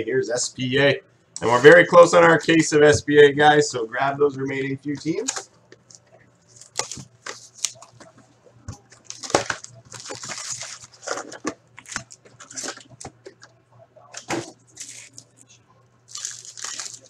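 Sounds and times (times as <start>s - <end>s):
shrink wrap crinkling and tearing: 6.5s - 7.9s, 9.0s - 13.0s, 14.8s - 15.4s, 16.1s - 17.0s
foil packs rustling: 9.0s - 13.0s, 16.1s - 17.0s.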